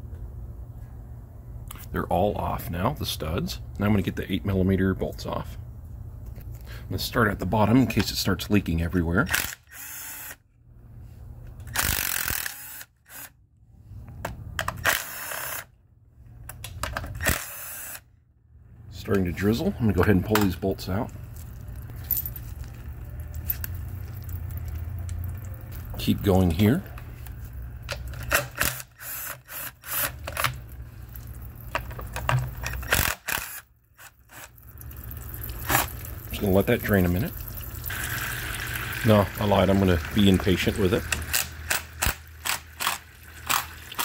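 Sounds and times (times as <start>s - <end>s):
power tool whirring bursts: 9.4s - 10.4s, 11.7s - 13.4s, 14.8s - 15.7s, 17.2s - 18.1s, 28.6s - 30.2s.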